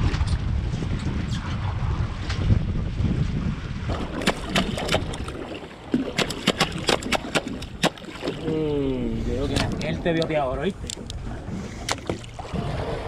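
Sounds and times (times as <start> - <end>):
wind buffeting microphone: 0.0 - 13.0
sharp irregular knocks and clicks: 6.2 - 8.1
man talking: 8.4 - 10.9.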